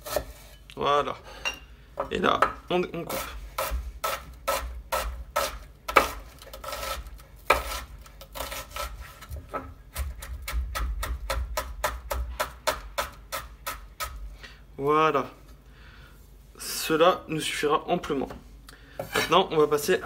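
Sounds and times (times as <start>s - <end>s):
knife chopping on wooden board: 2.4s - 14.2s.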